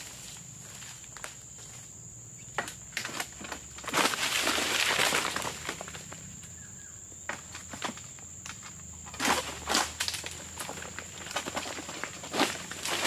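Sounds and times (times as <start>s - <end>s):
palm frond falling rustling: 2.6s - 6.4s, 7.3s - 13.0s.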